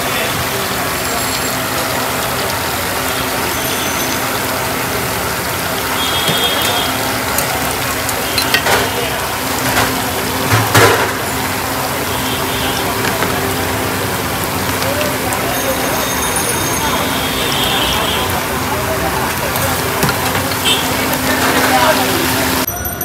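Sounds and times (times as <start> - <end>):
fries sizzling in hot oil: 0.0 - 23.0
ladle clanking against pan: 8.3 - 8.9, 20.0 - 20.7.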